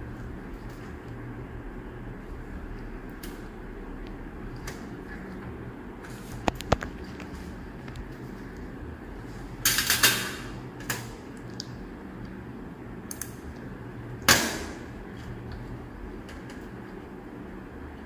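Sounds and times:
low hum: 0:00.0 - 0:09.8.

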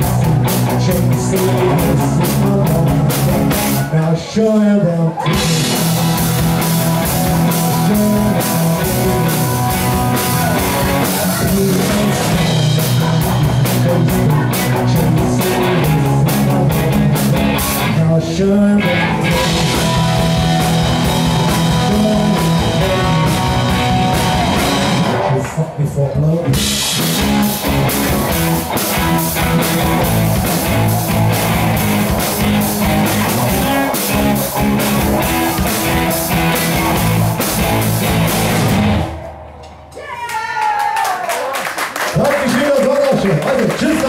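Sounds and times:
live rock band playing: 0:00.0 - 0:25.8, 0:26.4 - 0:39.9.

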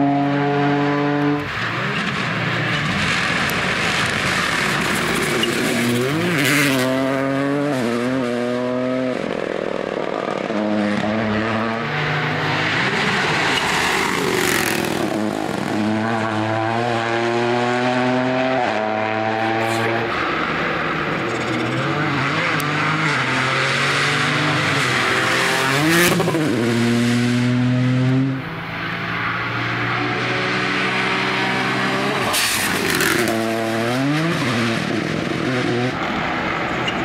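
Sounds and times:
rally car engine revving: 0:00.0 - 0:37.0
gravel hissing under tyres: 0:32.2 - 0:33.5.

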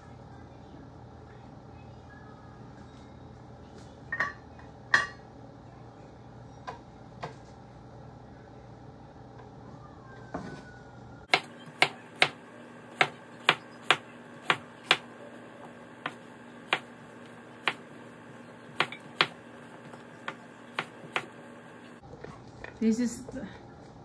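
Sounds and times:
knife chopping on wooden board: 0:11.3 - 0:15.1, 0:16.0 - 0:17.0, 0:17.6 - 0:17.9, 0:18.7 - 0:21.4.

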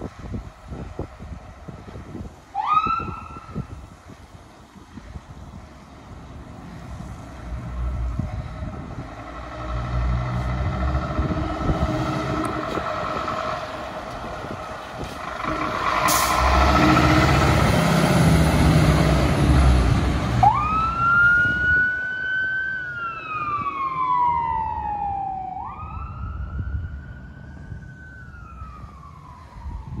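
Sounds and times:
fire engine diesel engine: 0:00.0 - 0:30.0
siren wailing: 0:02.5 - 0:03.6, 0:15.3 - 0:17.4, 0:20.4 - 0:30.0.

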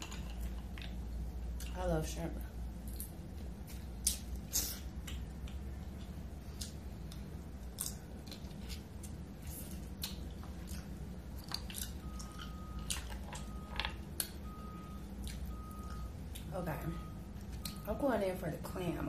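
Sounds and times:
low steady hum: 0:00.0 - 0:19.0
lip smacks and chewing: 0:02.8 - 0:16.5, 0:17.4 - 0:17.8.

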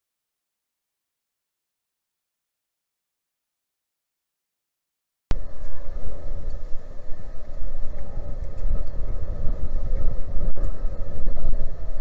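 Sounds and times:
low rumble: 0:05.3 - 0:12.0
ship machinery hum: 0:05.3 - 0:12.0.

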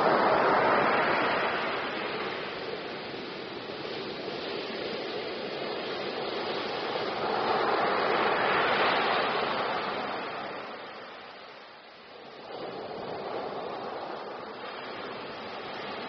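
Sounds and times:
ocean wave breaking: 0:00.0 - 0:03.4, 0:04.2 - 0:11.7, 0:12.3 - 0:16.0.

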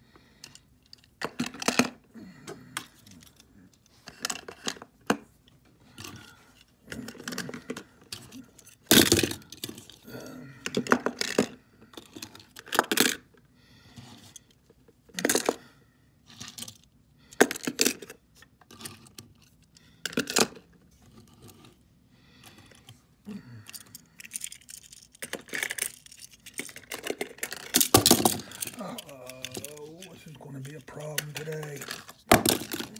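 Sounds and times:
metal toy trucks clattering: 0:23.6 - 0:32.9.

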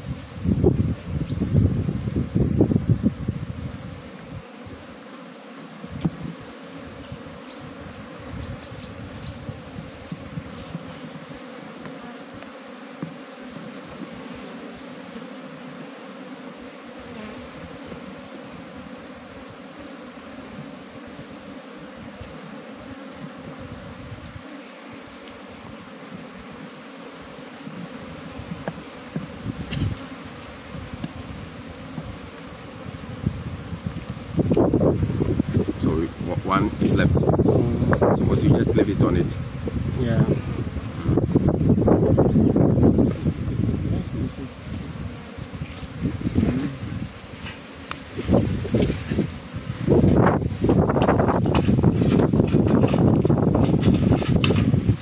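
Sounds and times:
honeybees buzzing: 0:00.0 - 0:55.0
knock on wooden hive: 0:27.8 - 0:30.0.

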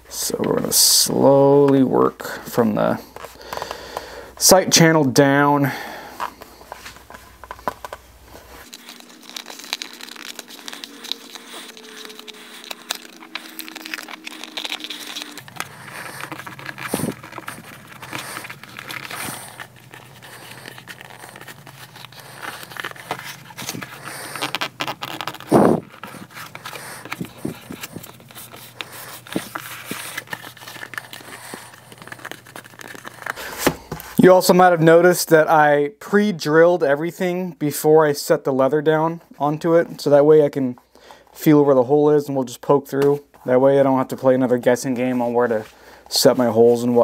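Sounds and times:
leather crinkling and scraping: 0:04.4 - 0:35.0, 0:38.9 - 0:47.0.

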